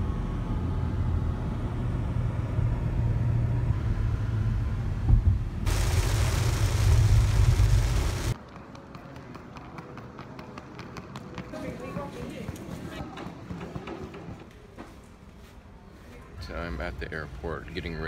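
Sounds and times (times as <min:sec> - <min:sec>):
car road rumble: 0:01.5 - 0:08.4
heavy rain on car: 0:05.7 - 0:08.4.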